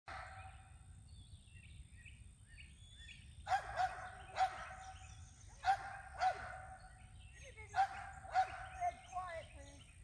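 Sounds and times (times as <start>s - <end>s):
dog barking: 0.1s - 0.6s, 3.5s - 5.0s, 5.6s - 6.9s, 7.8s - 8.8s
faint birdsong: 0.1s - 10.0s.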